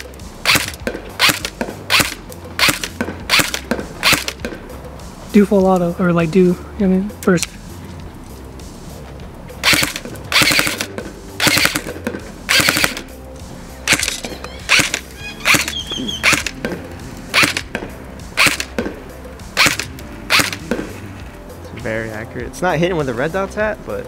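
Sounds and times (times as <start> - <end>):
airsoft gun firing full-auto bursts: 0.4 - 4.4, 9.6 - 13.1, 13.9 - 16.6, 17.3 - 17.7, 18.4 - 18.8, 19.6 - 20.8.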